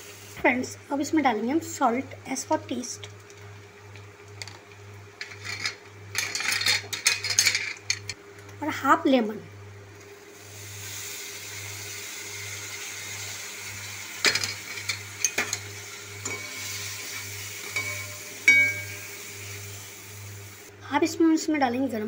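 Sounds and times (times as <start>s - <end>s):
food sizzling in oil: 0.0s - 0.6s, 10.1s - 20.7s
metal spoon clinking against pan: 14.3s - 16.7s, 17.7s - 19.2s.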